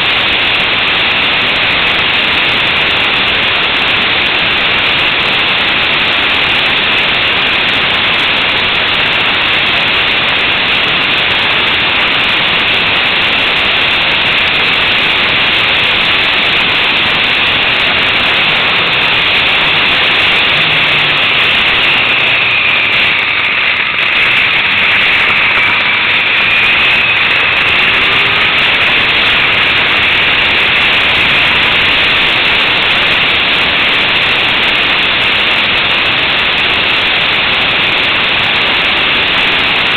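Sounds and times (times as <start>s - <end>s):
motorcycle engine: 0.0s - 39.9s
wind rushing: 14.3s - 32.9s.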